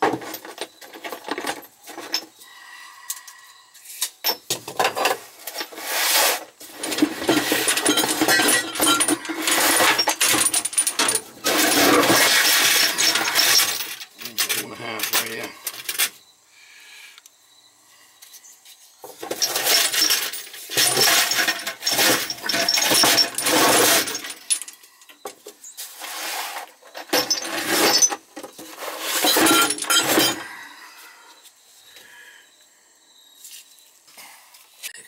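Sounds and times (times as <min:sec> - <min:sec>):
metal pipes clinking and rattling: 0:00.0 - 0:02.4, 0:04.2 - 0:05.8, 0:06.6 - 0:16.1, 0:19.1 - 0:30.5.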